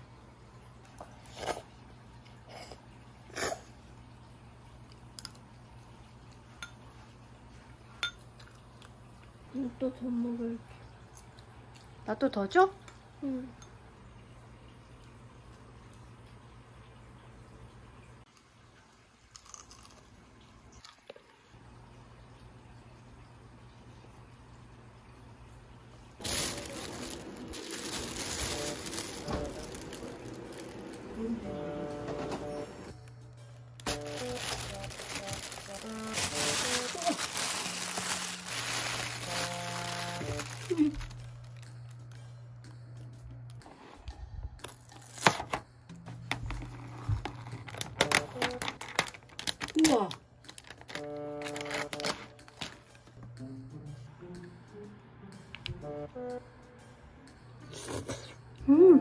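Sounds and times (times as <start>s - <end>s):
plastic bag rustling: 26.2s - 31.5s, 33.8s - 41.6s, 46.5s - 53.0s.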